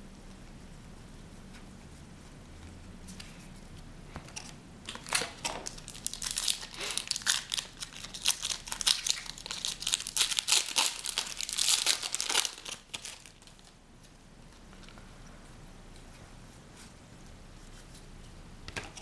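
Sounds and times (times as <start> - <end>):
foil wrapper crinkling and tearing: 4.4 - 13.8.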